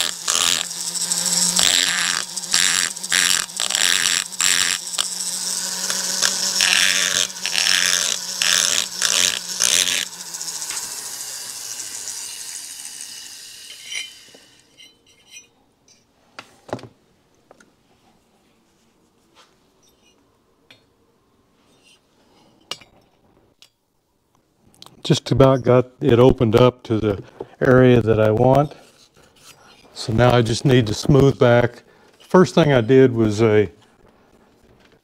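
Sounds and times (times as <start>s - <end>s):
die grinder whining and grinding: 0.0s - 14.9s.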